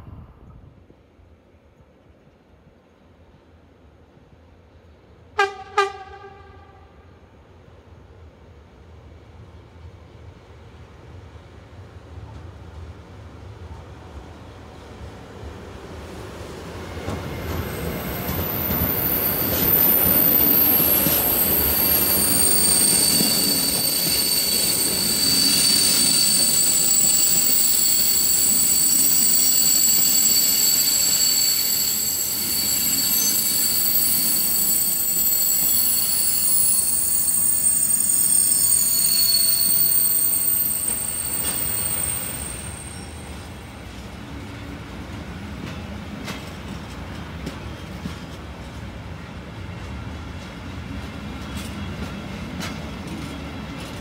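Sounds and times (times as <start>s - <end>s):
freight train rumbling over rails: 3.0s - 54.0s
wheels squealing: 17.3s - 43.5s.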